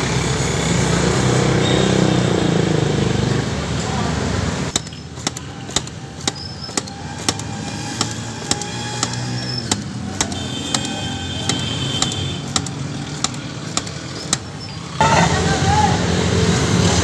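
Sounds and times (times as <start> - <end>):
traffic hum: 0.0 - 17.0
sugarcane cutter chopping: 4.7 - 14.7.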